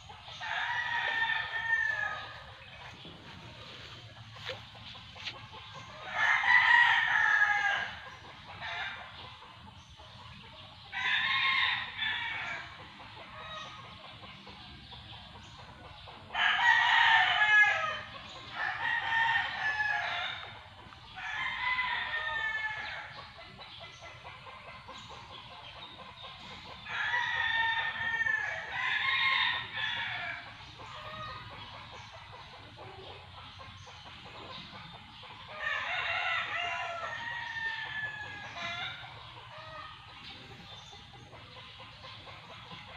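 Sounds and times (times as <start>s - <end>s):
roosters crowing: 0.0s - 4.5s, 5.2s - 9.3s, 10.9s - 13.8s, 16.3s - 23.3s, 26.5s - 33.3s, 35.4s - 41.2s.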